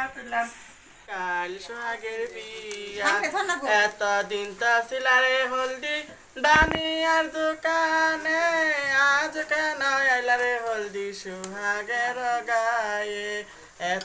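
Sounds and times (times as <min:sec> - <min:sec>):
person singing folk song: 0:00.0 - 0:14.0
brief thump: 0:06.5 - 0:06.8.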